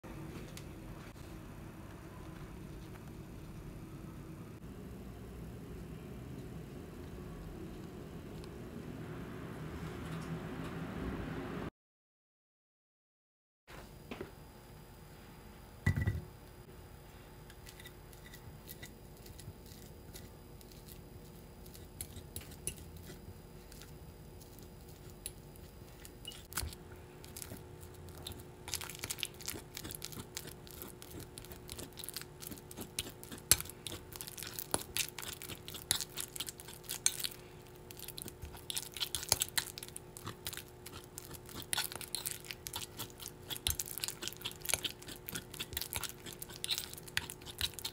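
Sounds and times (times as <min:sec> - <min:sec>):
fork mashing banana in bowl: 0:17.5 - 0:47.9.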